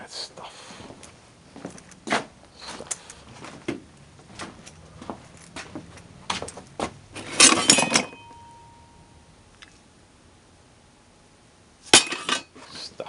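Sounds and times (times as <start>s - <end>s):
metal parts clattering in a box: 7.2s - 8.2s
faint ringing tone: 7.5s - 9.8s.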